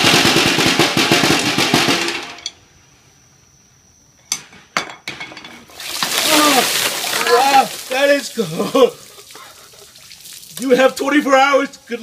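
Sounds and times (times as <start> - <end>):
rapid drum roll: 0.0 - 2.4.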